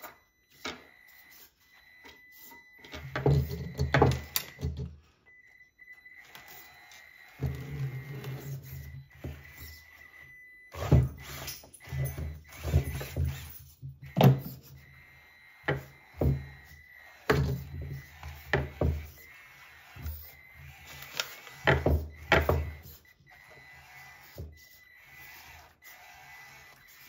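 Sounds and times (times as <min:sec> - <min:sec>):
electric motor whirring: 0:06.0 - 0:27.0.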